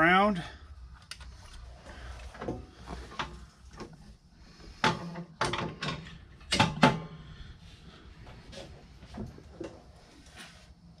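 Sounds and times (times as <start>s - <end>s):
metal parts and tools clanking: 4.8s - 7.2s.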